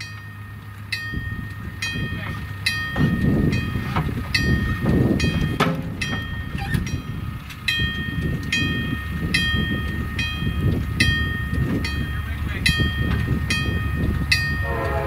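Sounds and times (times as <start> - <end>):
crossing signal bell ringing: 0.0 - 15.0
low rumble: 0.0 - 15.0.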